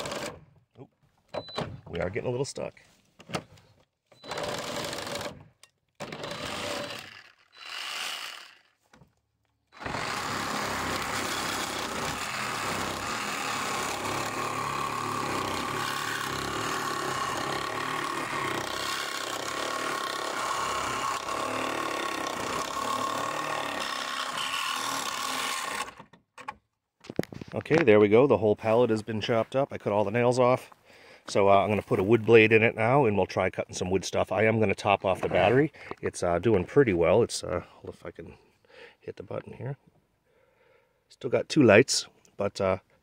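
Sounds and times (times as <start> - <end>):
reciprocating saw cutting wood: 0.0 - 0.4, 4.2 - 8.8, 9.7 - 26.1.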